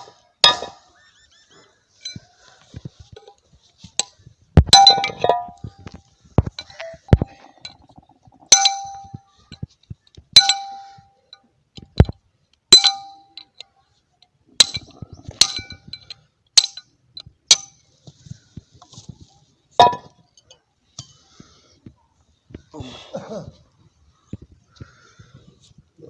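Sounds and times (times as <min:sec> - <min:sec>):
hammer clanging on metal: 0:08.5 - 0:09.2, 0:12.7 - 0:13.5.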